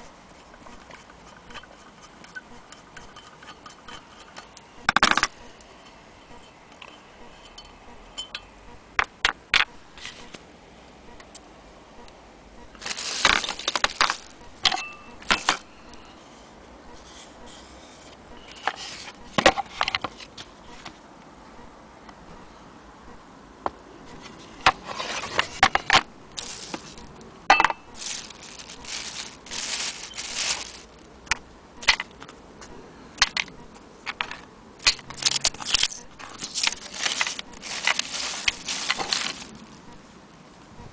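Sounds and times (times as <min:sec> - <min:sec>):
parts scraping and knocking on table: 0:24.3 - 0:27.0.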